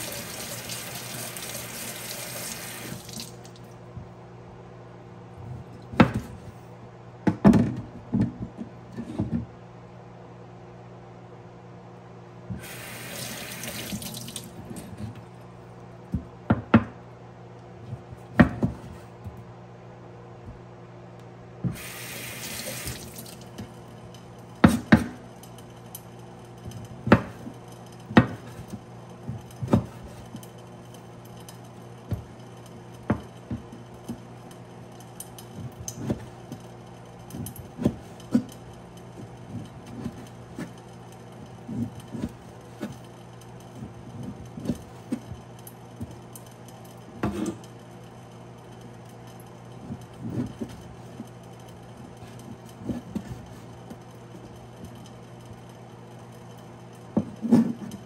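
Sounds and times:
kitchen tap running: 0.0 - 3.7, 12.6 - 14.7, 21.7 - 23.6.

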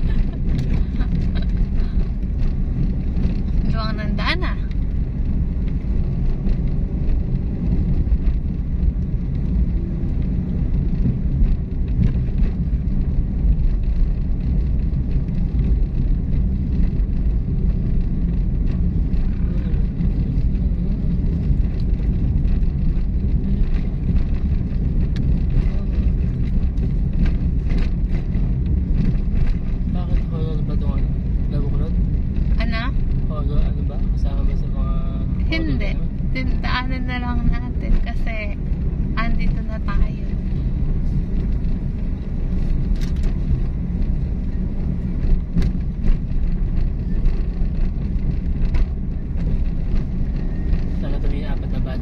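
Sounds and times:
road noise: 0.0 - 52.0
vehicle engine rumble: 0.0 - 52.0.

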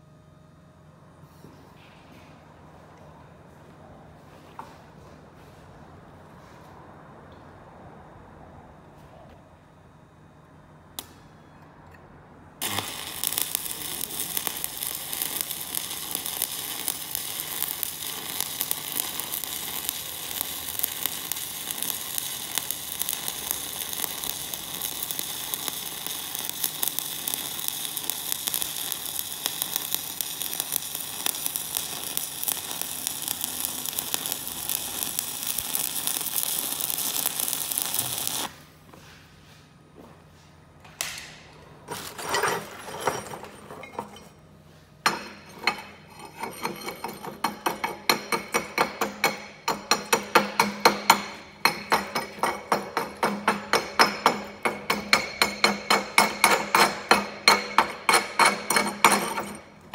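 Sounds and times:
welding arc crackling: 12.6 - 38.6, 45.3 - 59.9.

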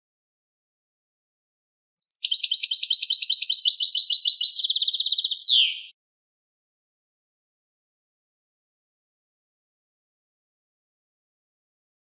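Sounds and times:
goldfinch twittering song: 2.0 - 5.9.

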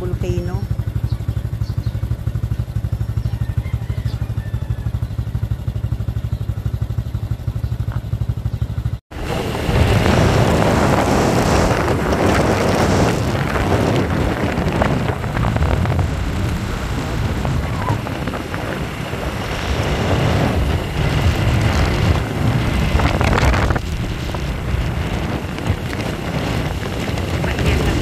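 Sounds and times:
motorcycle engine: 0.0 - 28.0
wind buffeting microphone: 9.1 - 28.0.

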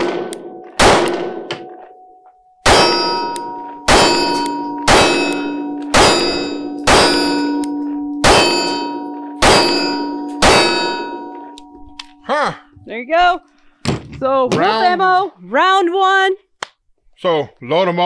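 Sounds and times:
pistol shots: 0.0 - 1.8, 2.6 - 11.4
steel target ringing: 0.0 - 12.3.

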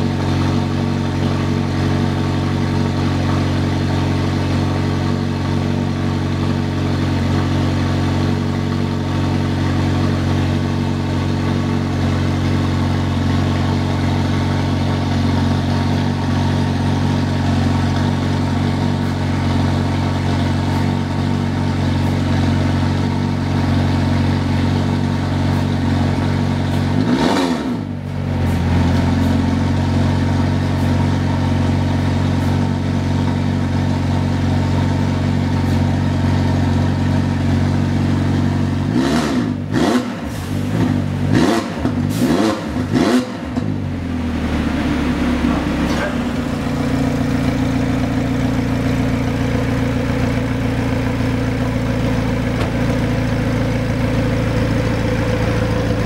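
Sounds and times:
car engine idling: 0.0 - 56.0
engine revving: 24.9 - 29.8, 38.7 - 48.8, 50.4 - 56.0.

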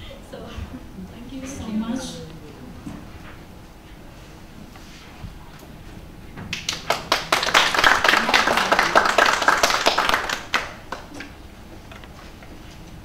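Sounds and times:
audience applauding: 6.5 - 11.3.

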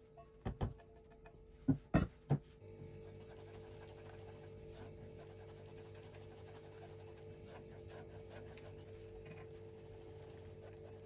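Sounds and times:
steady low hum: 0.0 - 11.0
whisk stirring in a saucepan: 3.0 - 11.0.

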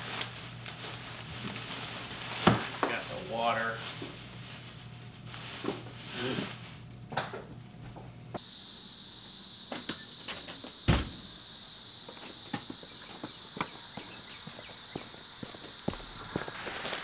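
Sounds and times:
plastic bags rustling: 0.0 - 6.9
items knocking on counter: 2.4 - 3.0
crickets chirping: 8.3 - 17.0.

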